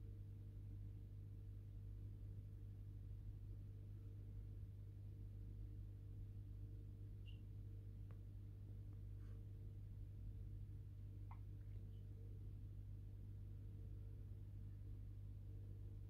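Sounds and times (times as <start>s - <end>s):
aquarium pump hum: 0.0s - 16.0s
faint high chirp: 7.1s - 7.8s.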